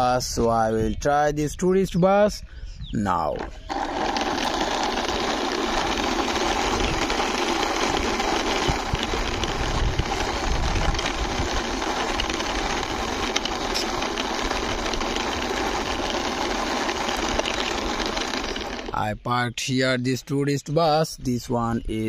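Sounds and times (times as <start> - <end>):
toy wheels rolling on concrete: 3.2 - 19.2.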